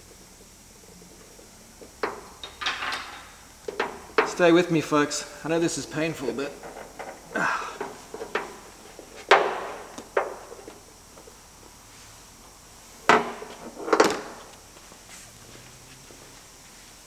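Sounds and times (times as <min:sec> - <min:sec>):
hard parts knocking and clacking: 0:02.0 - 0:04.4, 0:06.4 - 0:08.6.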